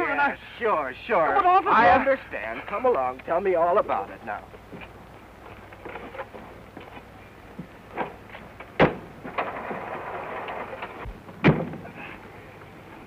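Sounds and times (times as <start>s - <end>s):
rustle of movement: 4.5s - 11.2s.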